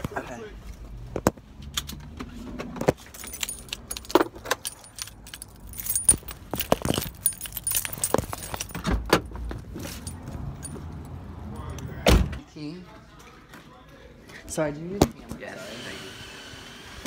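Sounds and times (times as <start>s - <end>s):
car keys jangling: 2.9s - 12.1s.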